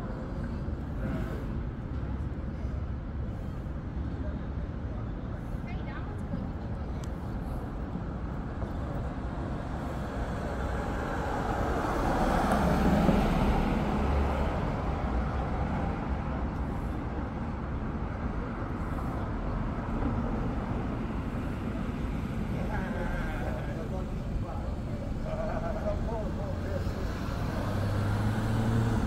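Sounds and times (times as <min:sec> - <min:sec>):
rumble of passing cars: 0:00.0 - 0:29.0
vehicle passing close: 0:26.5 - 0:29.0.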